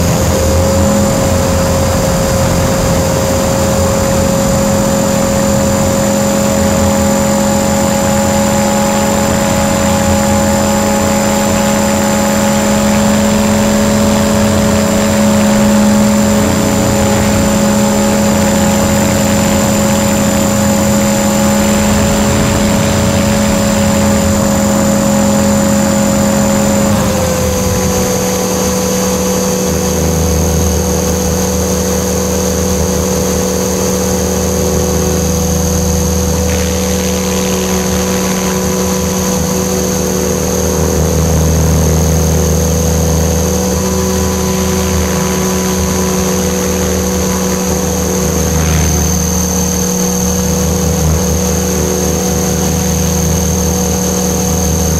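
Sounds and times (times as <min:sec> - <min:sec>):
wind noise: 0:00.0 - 0:31.5
motor and gear whine: 0:00.0 - 0:54.9
rotor hum: 0:00.0 - 0:54.9
low rumble: 0:15.0 - 0:28.5.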